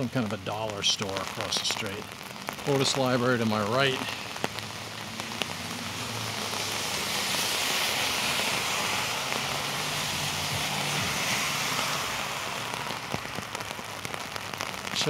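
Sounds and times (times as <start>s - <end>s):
heavy rain falling: 0.0s - 15.0s
tyres hissing on wet road: 0.0s - 15.0s
low car engine hum: 3.6s - 14.9s.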